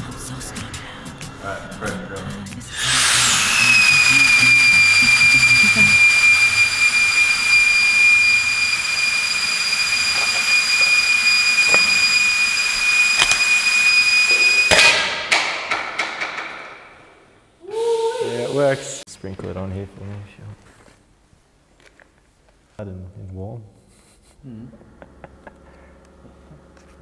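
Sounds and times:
pressure venting hiss with whistle: 2.7s - 14.8s.

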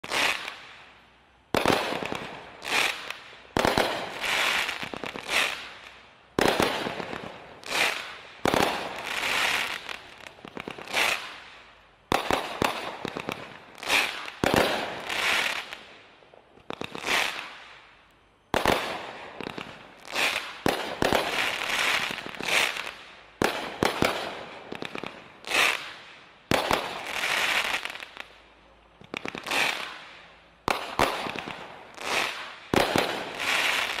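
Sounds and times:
firework crackle: 0.0s - 34.0s
firework shots launching and bursting: 18.6s - 27.9s, 30.7s - 34.0s.

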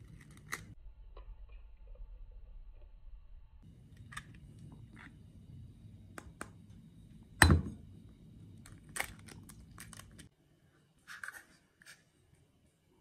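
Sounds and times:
eggshell crackling: 8.5s - 10.3s.

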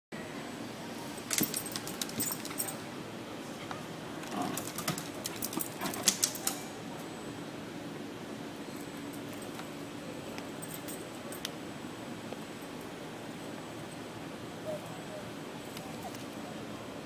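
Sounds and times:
low background hum: 0.2s - 17.0s
dog collar tags jingling: 1.2s - 2.8s, 4.3s - 6.7s, 10.5s - 11.5s.

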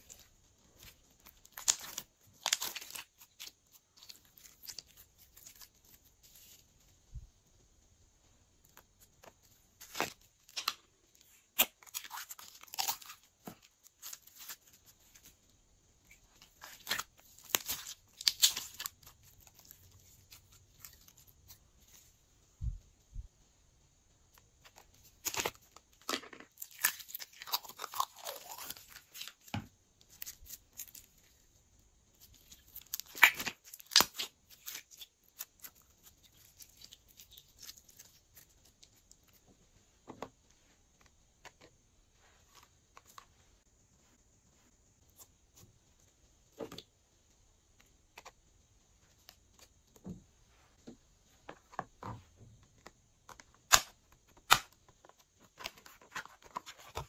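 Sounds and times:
plastic tubes crackling and clicking: 32.2s - 39.5s.

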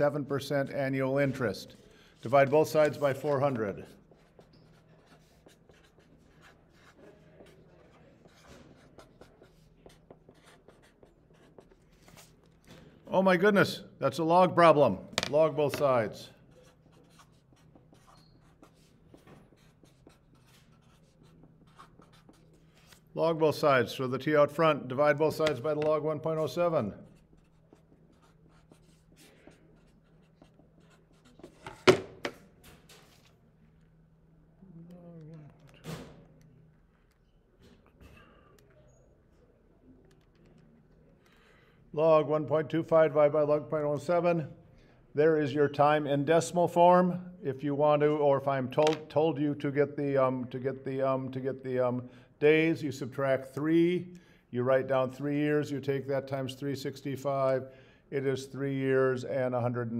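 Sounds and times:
pen scratching on paper: 2.4s - 12.4s, 16.5s - 23.0s, 26.4s - 31.8s.

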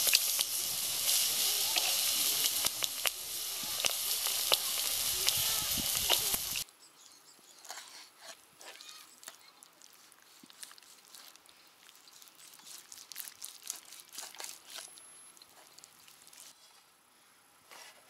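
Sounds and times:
meat sizzling on a grill: 0.0s - 6.6s.

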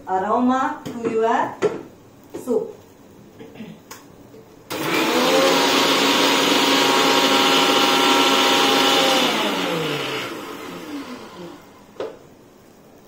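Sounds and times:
mixer grinder running: 4.7s - 11.9s.

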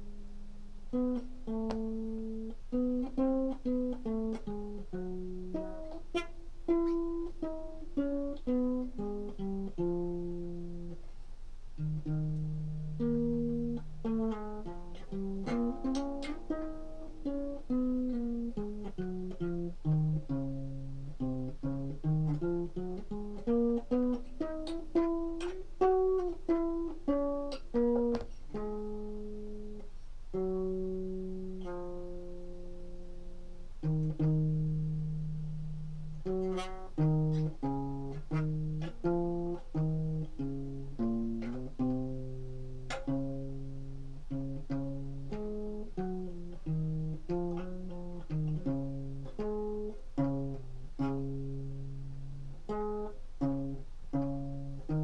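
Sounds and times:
solo guitar plucked notes: 0.0s - 55.0s.

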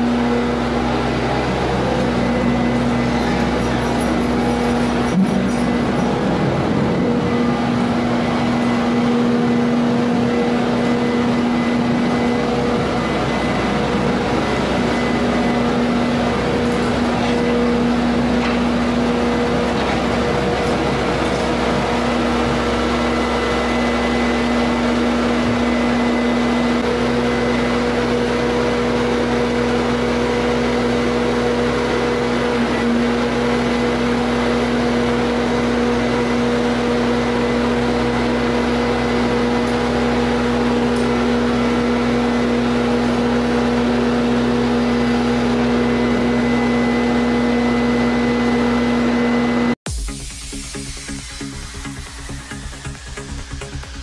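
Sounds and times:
loader diesel engine humming: 0.0s - 50.0s.

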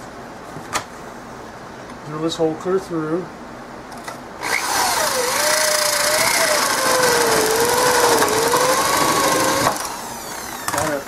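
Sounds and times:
electric drill boring through wood: 4.4s - 11.0s.

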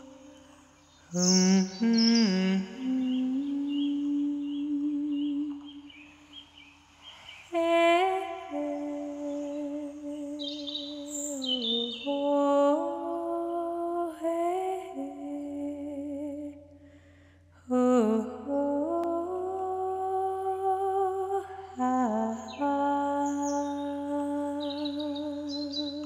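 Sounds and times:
high bird chirps: 0.0s - 7.6s, 10.4s - 12.2s, 24.6s - 26.0s
slow meditation melody: 0.0s - 16.8s, 17.7s - 26.0s.

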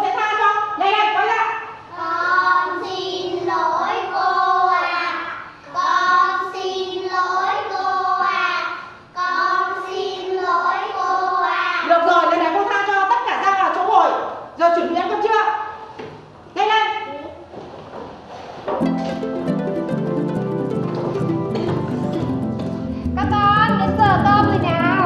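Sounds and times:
children singing in unison: 1.9s - 11.8s.

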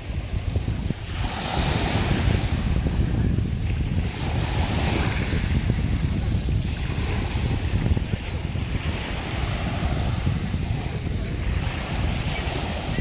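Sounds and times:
sea waves on pebble beach: 0.0s - 3.0s, 6.7s - 13.0s
wind buffeting microphone: 0.0s - 13.0s.

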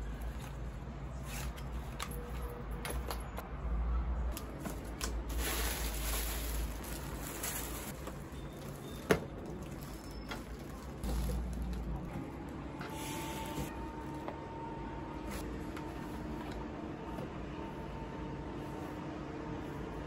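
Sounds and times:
plastic packaging rustling: 4.3s - 13.8s.

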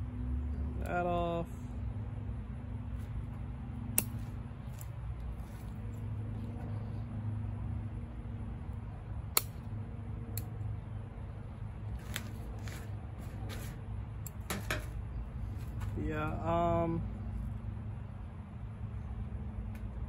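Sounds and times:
low background hum: 0.0s - 20.0s
scissors snipping stems: 3.0s - 6.6s, 9.3s - 10.6s, 11.9s - 14.9s.

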